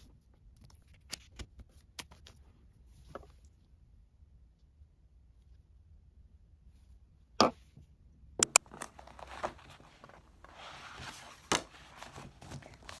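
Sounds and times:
paper pages rustling: 8.6s - 13.0s.

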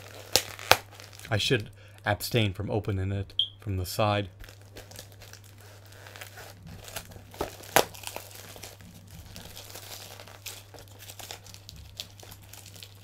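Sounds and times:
cardboard and paper crinkling: 0.0s - 1.3s, 4.4s - 13.0s.

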